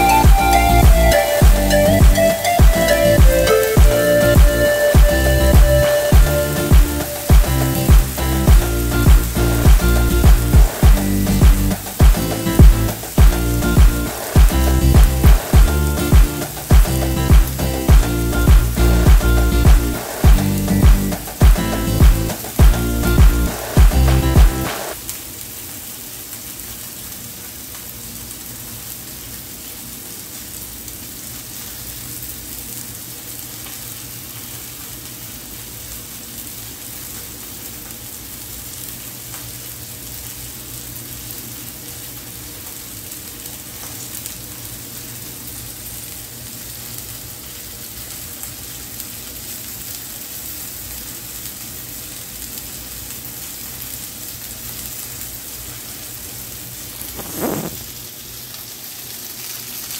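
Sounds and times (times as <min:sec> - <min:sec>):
chicken sizzling on a grill: 0:02.4 - 0:59.9.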